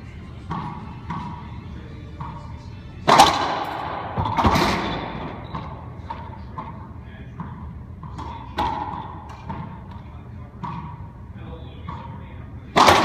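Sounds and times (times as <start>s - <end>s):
racquet striking ball cracks: 3.0s - 4.9s, 12.7s - 13.0s.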